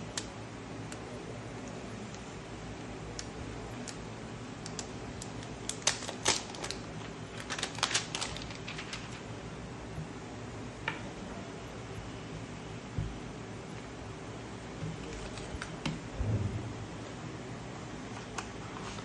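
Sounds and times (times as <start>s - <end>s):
plastic film crackling: 4.6s - 9.3s, 15.0s - 15.8s.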